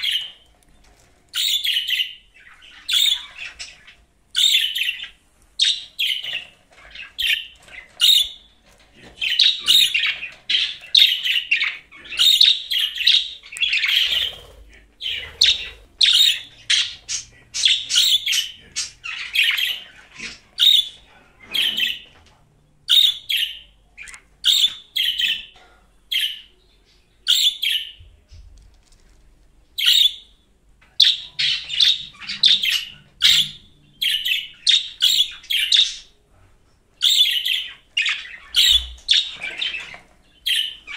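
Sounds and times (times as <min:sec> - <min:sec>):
budgerigar chirping: 0:01.4 - 0:08.4, 0:09.2 - 0:21.0, 0:31.0 - 0:36.1, 0:37.0 - 0:39.8.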